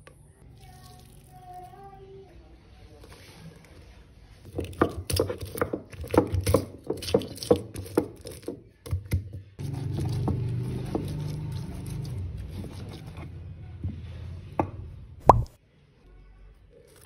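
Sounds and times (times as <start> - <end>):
stone pestle pounding in mortar: 4.5 - 13.2.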